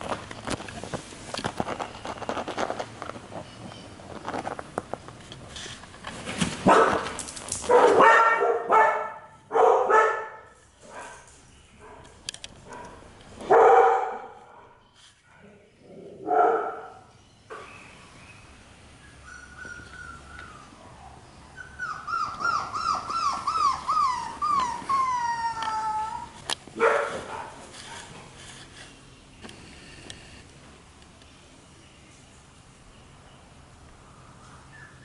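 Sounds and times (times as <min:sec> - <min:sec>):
small clicks and scratches: 0:00.0 - 0:06.2, 0:25.5 - 0:31.3
puppy barking: 0:06.6 - 0:11.2, 0:11.8 - 0:14.8, 0:16.2 - 0:17.1, 0:20.8 - 0:28.2.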